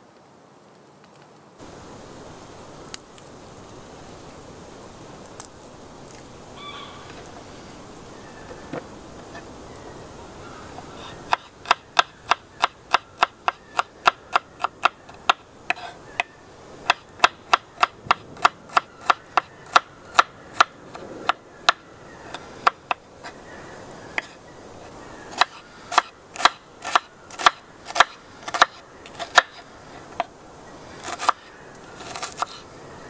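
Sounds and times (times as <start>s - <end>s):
knife chopping on wooden board: 11.3s - 15.9s, 16.8s - 21.8s, 25.4s - 29.6s.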